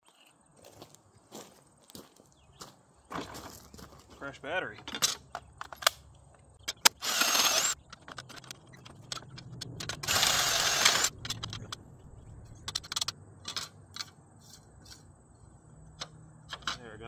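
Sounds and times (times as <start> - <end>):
cordless drill boring metal: 6.9 - 7.8, 10.0 - 11.1.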